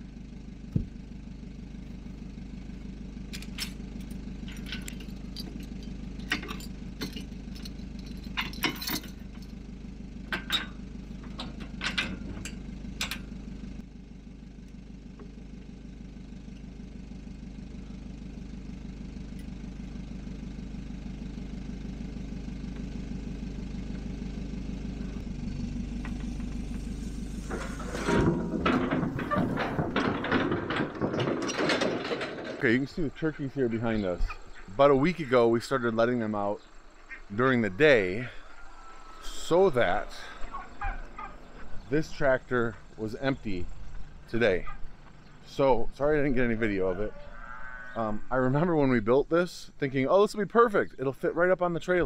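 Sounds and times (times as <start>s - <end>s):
van engine idling: 0.0s - 47.4s
metal chains clinking and rattling: 3.3s - 9.6s, 10.3s - 13.3s, 26.9s - 34.5s
loud metallic clattering: 25.8s - 34.4s.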